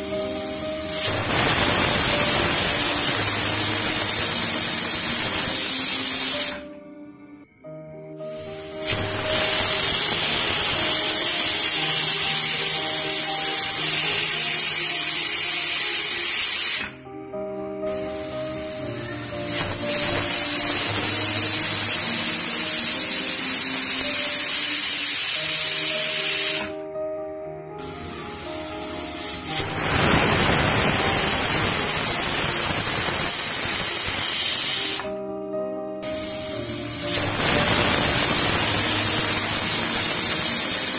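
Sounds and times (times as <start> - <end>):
pressure cooker steam hissing: 0.0 - 6.6, 8.2 - 17.0, 17.9 - 26.9, 27.8 - 35.2, 36.0 - 40.9.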